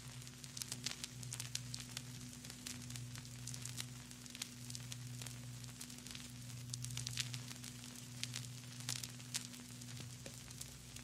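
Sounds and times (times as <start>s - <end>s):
soft hiss: 0.0s - 11.0s
vinyl crackles and pops: 0.0s - 11.0s.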